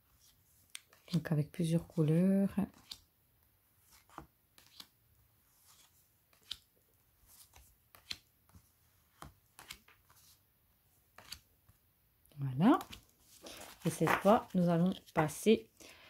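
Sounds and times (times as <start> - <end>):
cards clicking and sliding: 2.7 - 3.1, 3.8 - 5.0, 5.6 - 6.7, 7.3 - 8.6, 9.2 - 10.4, 11.1 - 11.5.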